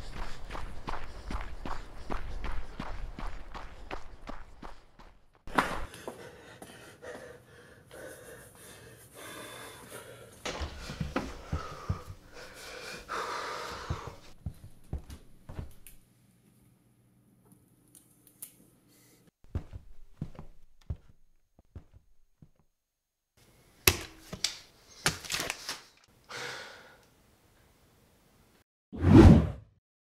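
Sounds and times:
heavy wheezing breathing: 5.8 - 14.4.

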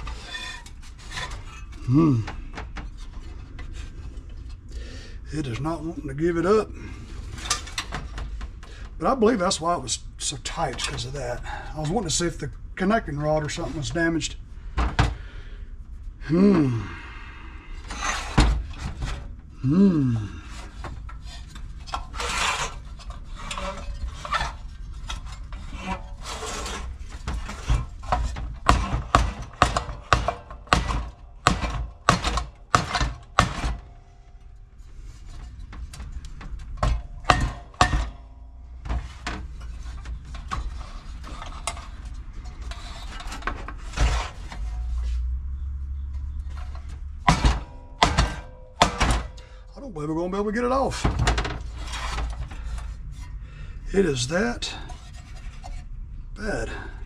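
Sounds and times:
metal scraping on bench: 0.0 - 1.9, 17.9 - 19.2, 20.5 - 33.8, 34.4 - 49.6, 51.2 - 53.4
metal engine parts clanking: 0.0 - 15.3, 17.8 - 57.0.

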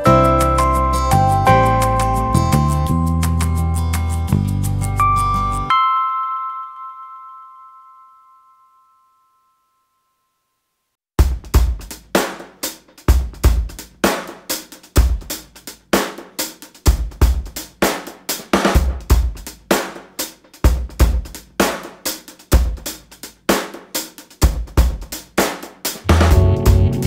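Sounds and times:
drum kit beat: 0.0 - 5.2, 11.2 - 27.0.

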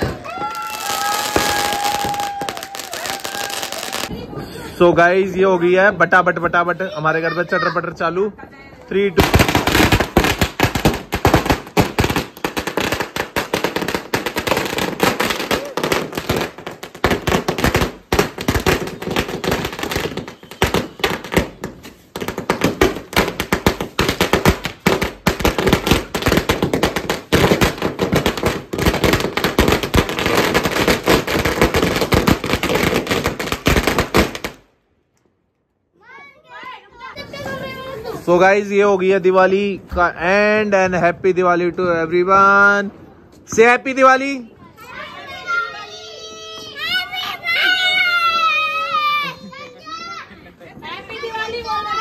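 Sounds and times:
string of firecrackers banging: 8.9 - 34.7.

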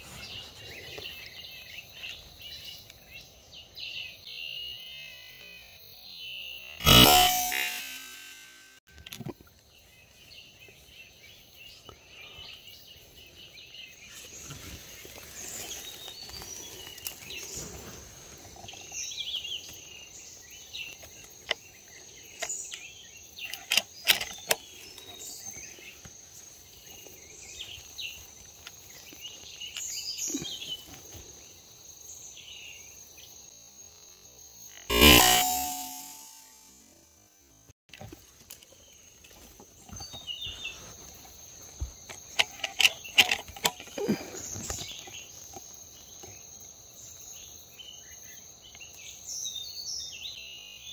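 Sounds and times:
small birds chirping: 9.2 - 33.4, 38.6 - 50.9.

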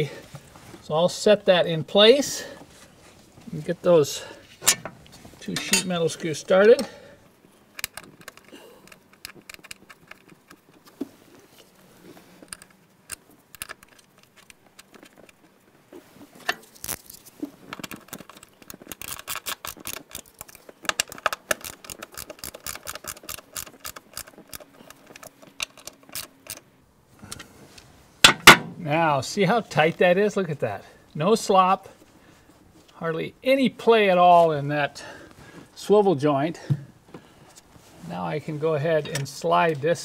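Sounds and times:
small clicks and scrapes: 7.5 - 27.9.

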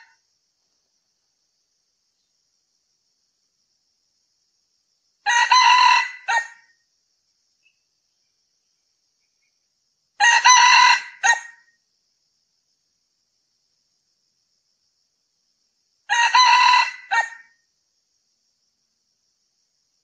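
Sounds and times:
rooster crowing: 5.2 - 6.6, 10.2 - 11.6, 16.1 - 17.6.

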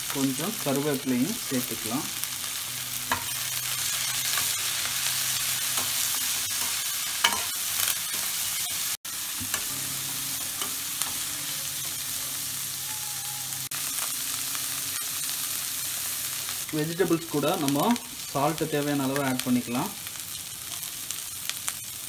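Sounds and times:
vegetables sizzling in hot oil: 0.0 - 22.0
metal spatula scraping a pan: 5.3 - 8.9.

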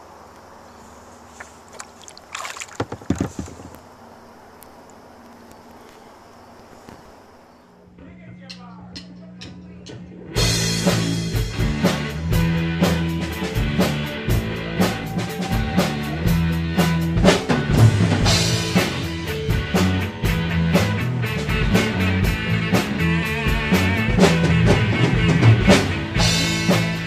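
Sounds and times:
rock music with drums and bass: 9.9 - 27.0.

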